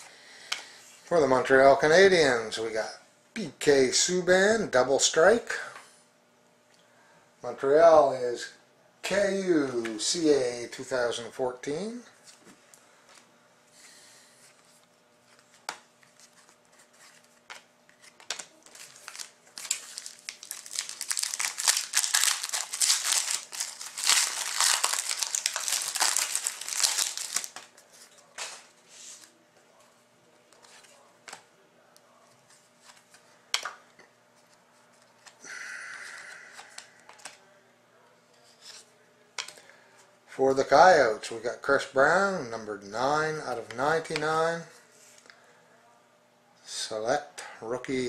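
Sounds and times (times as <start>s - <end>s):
cards clicking and rustling: 14.5s - 29.3s, 36.5s - 37.4s
wrapper being torn and crinkled: 18.0s - 27.7s.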